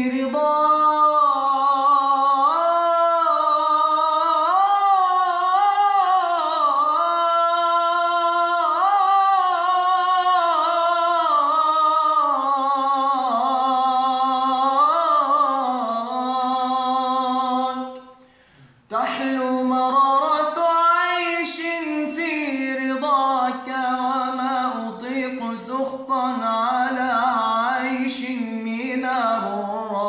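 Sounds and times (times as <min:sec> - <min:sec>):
man singing unaccompanied: 0:00.0 - 0:18.2, 0:18.9 - 0:30.0.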